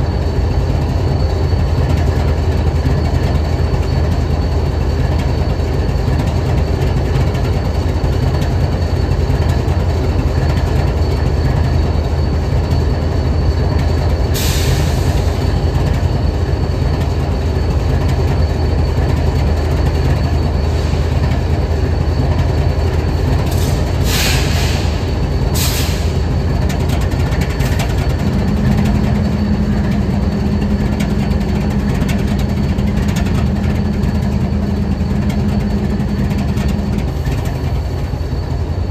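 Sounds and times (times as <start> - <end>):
diesel locomotive idling: 0.0 - 38.9
short hisses: 23.6 - 25.0
higher steady hum: 27.3 - 38.9.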